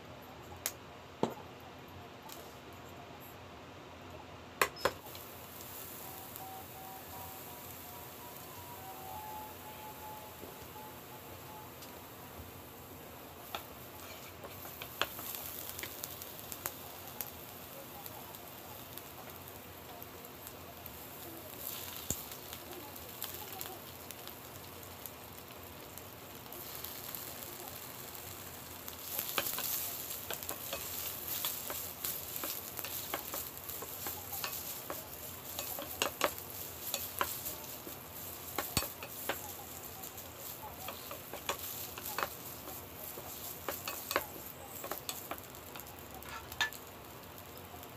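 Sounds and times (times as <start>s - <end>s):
oil sizzling in frying pan: 4.6s - 47.9s
spatula tapping and scraping pan: 13.4s - 16.6s, 28.8s - 46.8s.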